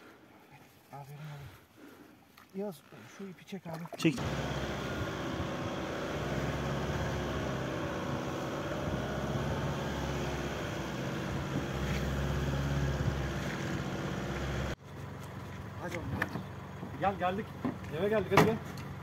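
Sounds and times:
car engine and tyre noise: 0:04.2 - 0:19.0.

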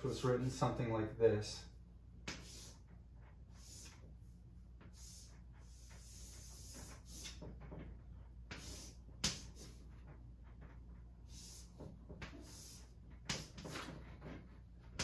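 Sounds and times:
chalk tapping on board: 0:02.2 - 0:02.9, 0:03.5 - 0:04.1, 0:04.8 - 0:07.8, 0:08.5 - 0:09.8, 0:11.3 - 0:14.4
chalk scratching on blackboard: 0:02.2 - 0:15.0.

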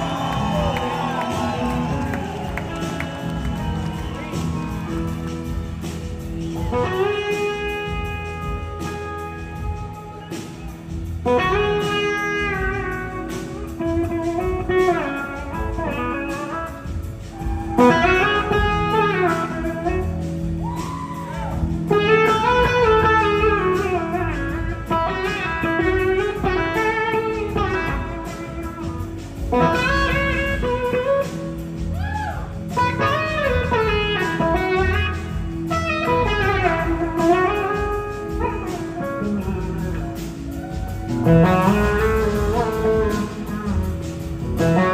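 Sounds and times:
band backing: 0:00.0 - 0:44.9
electric slide guitar solo: 0:17.4 - 0:20.0, 0:32.8 - 0:44.9.

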